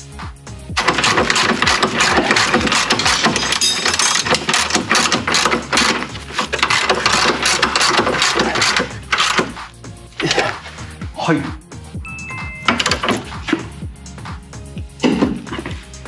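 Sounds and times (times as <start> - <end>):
ratchet wrench clicking: 0.8 - 9.6.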